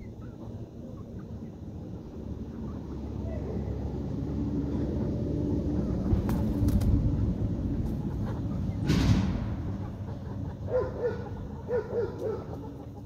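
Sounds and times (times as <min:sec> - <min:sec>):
steady low rumble: 0:00.0 - 0:10.7
chickens clucking: 0:00.0 - 0:13.0.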